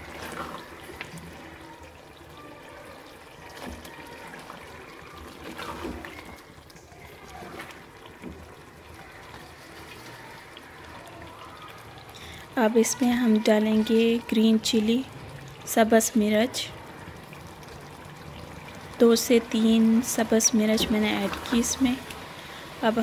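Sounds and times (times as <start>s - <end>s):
spatula stirring and scraping: 0.0s - 1.6s, 3.0s - 10.6s, 20.1s - 23.0s
gravy simmering in a pot: 0.0s - 23.0s.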